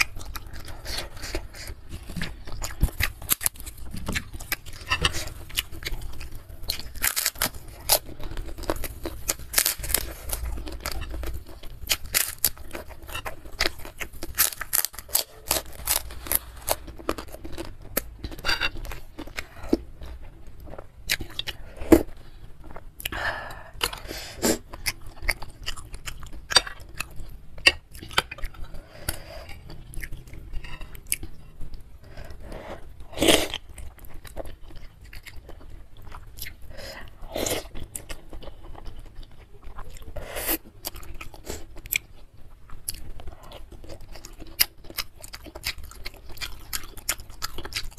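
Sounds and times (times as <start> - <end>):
crunching crispy crackers: 0.0 - 32.0, 33.0 - 47.9.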